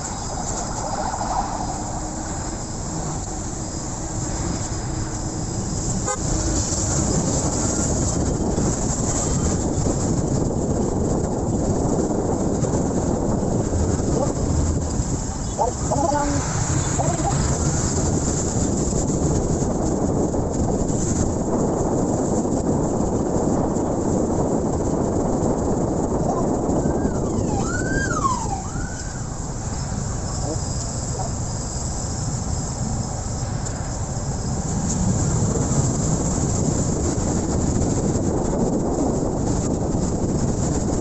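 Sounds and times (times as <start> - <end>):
siren-like glides: 0.0 - 9.6, 26.2 - 31.4
motorcycle road noise: 0.0 - 41.0
wind rushing over microphone: 0.0 - 41.0.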